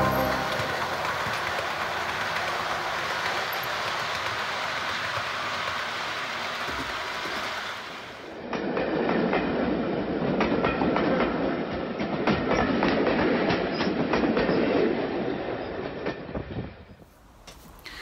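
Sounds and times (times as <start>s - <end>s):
model trains rattling on track: 0.0s - 16.6s
wheels clicking over rail joints: 0.8s - 9.5s.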